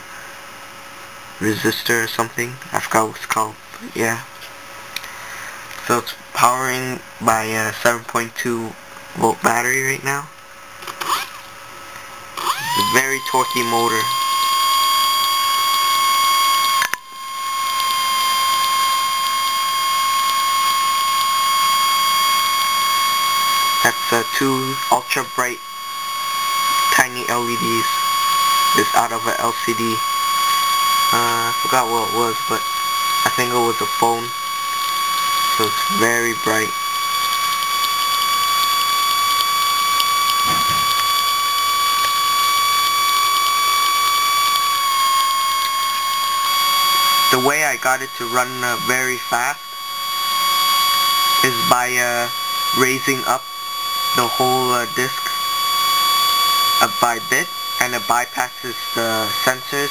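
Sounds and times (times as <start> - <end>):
small motor high whine: 0.0 - 59.9
click: 16.7 - 17.0, 17.6 - 19.4, 37.1 - 47.0
faint irregular ticking: 36.4 - 47.3.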